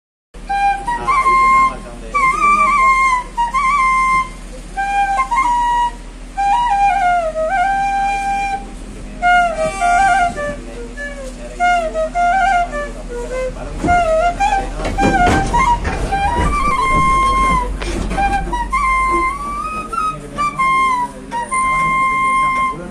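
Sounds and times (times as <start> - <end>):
bamboo flute melody: 0.4 - 22.9
rattling noise: 13.3 - 22.0.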